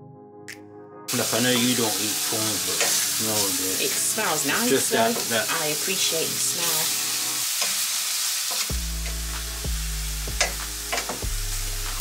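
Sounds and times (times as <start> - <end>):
prawns sizzling in a pan: 1.1 - 12.0
background music with bass: 8.7 - 12.0.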